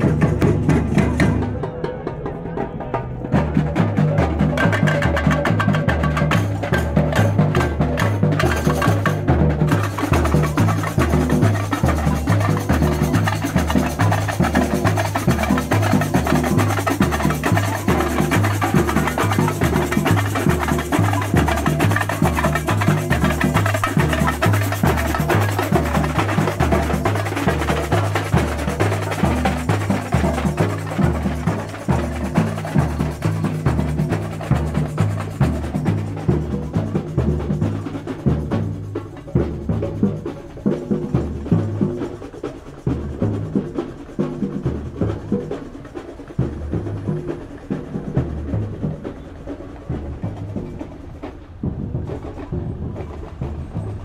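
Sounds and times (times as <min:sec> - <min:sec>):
samba drum group playing: 0:00.0 - 0:54.0.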